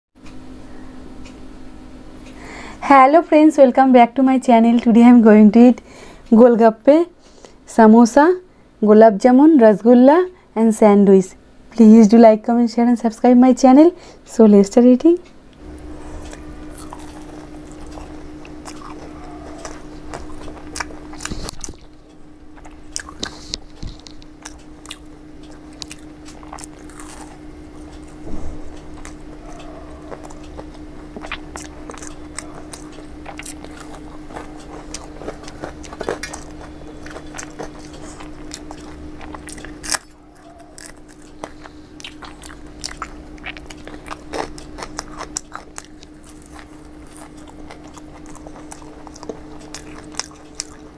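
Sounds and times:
steady low hum: 0.2s - 50.9s
crunching bites and chewing: 15.9s - 50.9s.

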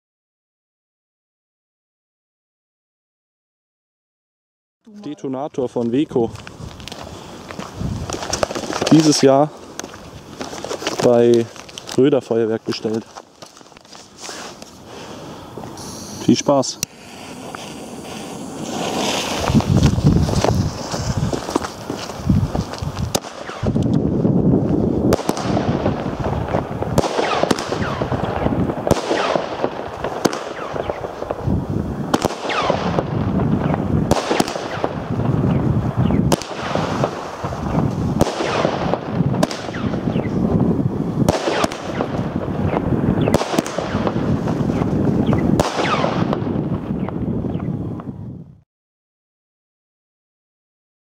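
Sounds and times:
firework bangs: 5.8s - 12.0s, 12.8s - 48.1s
steady rushing noise: 15.0s - 27.0s.

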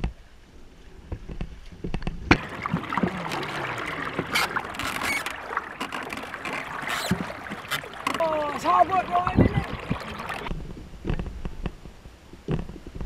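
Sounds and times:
water splashing past canoe: 2.3s - 10.5s.

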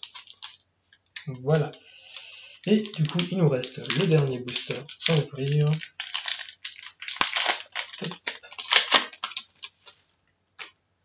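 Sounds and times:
foil wrapper tearing and crinkling: 0.0s - 0.6s, 2.0s - 10.0s.

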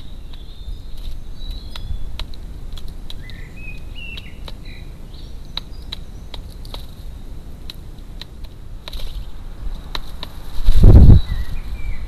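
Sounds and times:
sharp clicks: 0.0s - 4.7s, 5.5s - 10.4s
low background rumble: 0.0s - 12.0s
small birds chirping: 0.0s - 12.0s.

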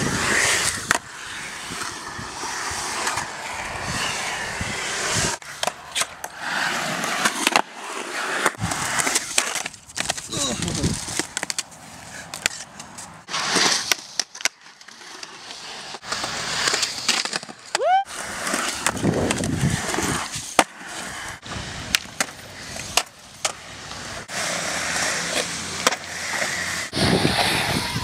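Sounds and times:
skateboard wheels rolling on concrete: 0.0s - 28.0s
skateboard clacking on ground: 5.4s - 6.4s, 8.4s - 17.8s, 18.4s - 24.0s, 24.6s - 28.0s.

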